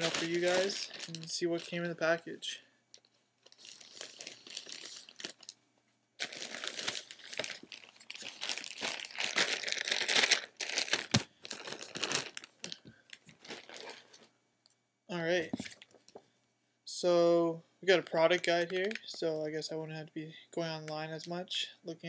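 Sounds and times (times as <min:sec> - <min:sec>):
paper packaging crinkling and tearing: 0:00.0 - 0:02.0, 0:03.5 - 0:05.6, 0:06.2 - 0:14.2.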